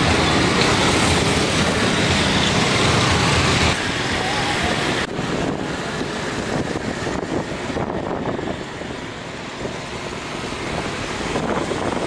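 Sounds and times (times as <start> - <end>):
motorbike engine and road noise: 0.0 - 12.0
wind on microphone: 3.6 - 12.0.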